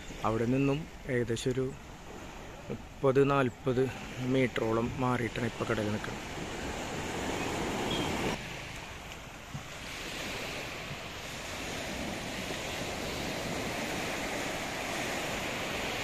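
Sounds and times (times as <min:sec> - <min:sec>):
small waves breaking on beach: 0:00.0 - 0:16.0
wind on microphone: 0:09.4 - 0:16.0.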